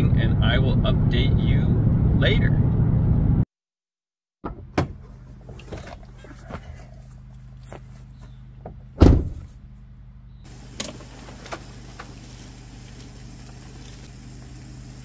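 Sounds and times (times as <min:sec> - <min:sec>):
vehicle humming: 0:00.0 - 0:03.4, 0:05.0 - 0:15.0
loud thump: 0:09.0 - 0:09.5.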